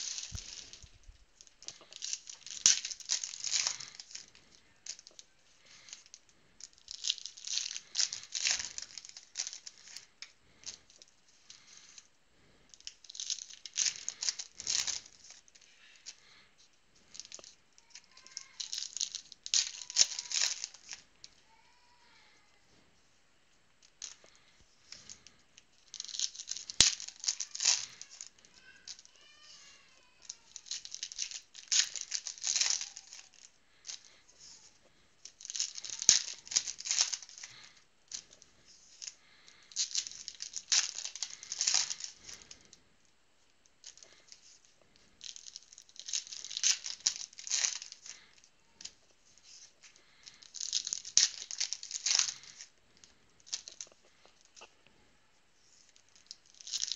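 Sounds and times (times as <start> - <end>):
foil wrappers tearing and crinkling: 0.0 - 6.2, 6.8 - 10.8, 12.8 - 16.4, 17.0 - 21.0, 24.0 - 29.5, 30.2 - 42.7, 45.2 - 52.7, 53.4 - 54.7, 56.0 - 56.9.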